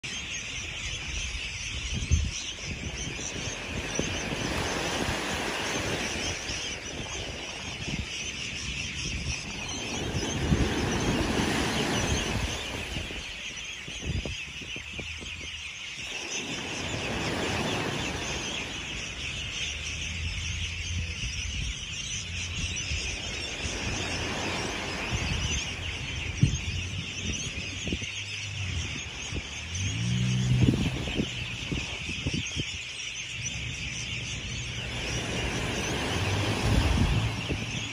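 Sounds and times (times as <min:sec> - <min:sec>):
small waves washing up beach: 0:02.6 - 0:14.0, 0:16.0 - 0:20.6, 0:22.1 - 0:27.8, 0:33.7 - 0:37.9.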